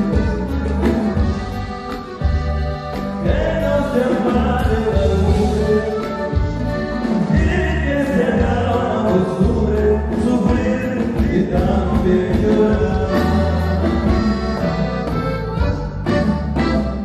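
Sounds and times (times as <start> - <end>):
button accordion: 0.0 - 17.0
steady bass line: 0.0 - 17.0
man singing: 3.1 - 15.8.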